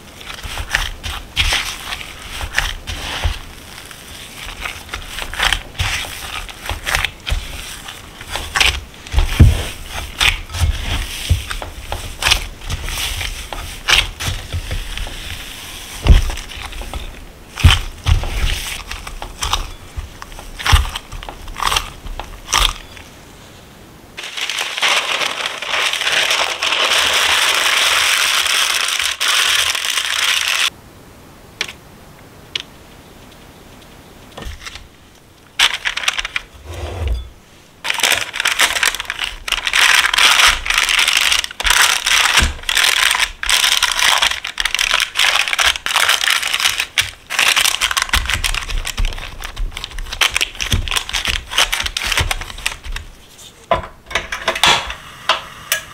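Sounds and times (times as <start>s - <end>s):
parchment paper and glove crinkling: 0.0s - 23.6s, 24.2s - 30.7s, 34.4s - 36.7s, 37.8s - 54.3s
dough thumping down: 4.5s - 22.8s.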